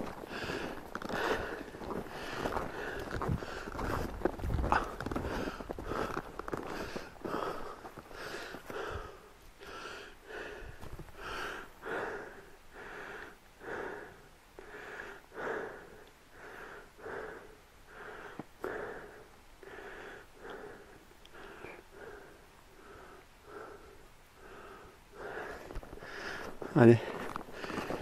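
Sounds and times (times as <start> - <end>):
snowshoe footsteps crunching on snow: 0.0 - 8.8, 25.4 - 28.0.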